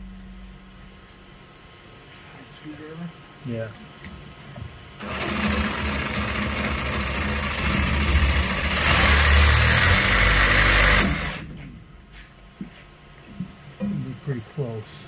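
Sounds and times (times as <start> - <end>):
reciprocating saw cutting metal pipe: 5.0 - 11.4.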